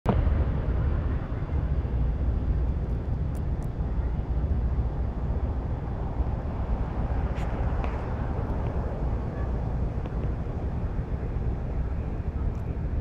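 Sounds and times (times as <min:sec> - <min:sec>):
low rumbling outdoor background noise: 0:00.1 - 0:13.0.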